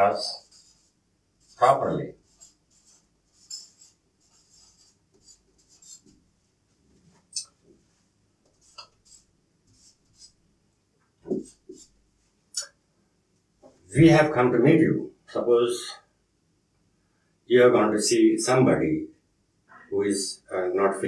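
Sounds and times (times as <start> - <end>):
marker writing on whiteboard: 0.0 - 6.3, 8.4 - 10.4, 11.2 - 12.0.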